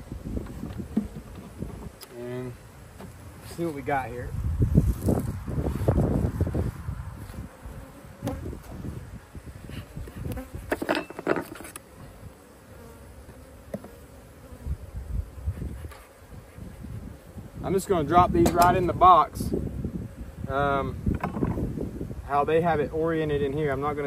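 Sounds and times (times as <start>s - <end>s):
honeybees buzzing: 0.0s - 24.0s
knocks of hive equipment: 18.4s - 18.8s, 21.1s - 21.6s.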